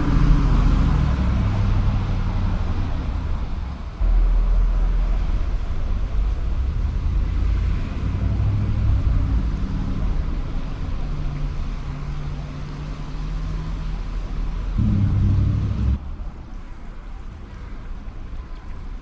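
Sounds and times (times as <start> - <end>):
roadway rumble: 0.0 - 19.0
car engine humming: 14.8 - 16.1.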